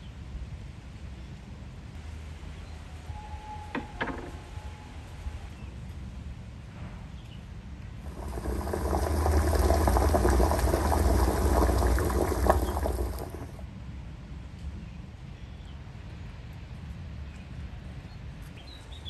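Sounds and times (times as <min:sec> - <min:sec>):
liquid pouring: 0:08.0 - 0:13.6.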